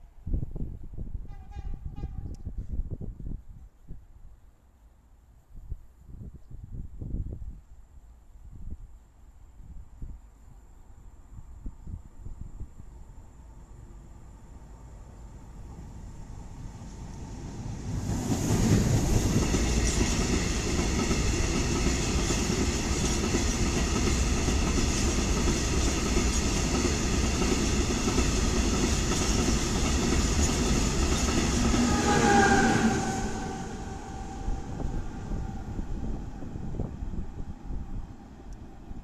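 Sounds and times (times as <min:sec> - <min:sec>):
electric locomotive hum: 0:12.3 - 0:39.0
diesel locomotive passing: 0:13.3 - 0:39.0
wheel and rail noise: 0:13.3 - 0:39.0.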